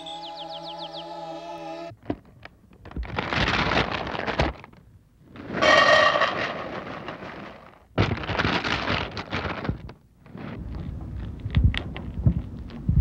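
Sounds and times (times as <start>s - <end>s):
dry cereal rattling into a bowl: 5.5s - 9.9s.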